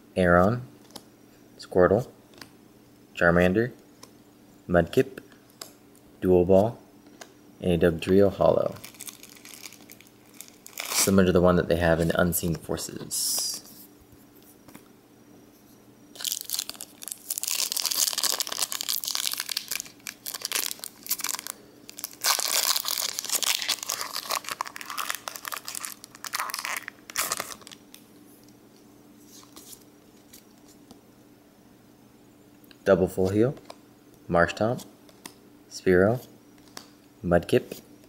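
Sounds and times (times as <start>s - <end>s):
foil pack tearing and crinkling: 8.8s - 11.2s, 16.2s - 27.9s.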